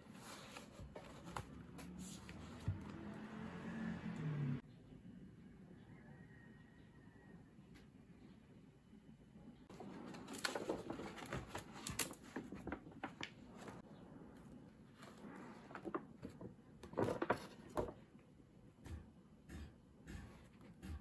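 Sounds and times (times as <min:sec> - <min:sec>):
paper pages rustling: 0:00.0 - 0:03.0, 0:09.7 - 0:13.8, 0:14.4 - 0:18.0.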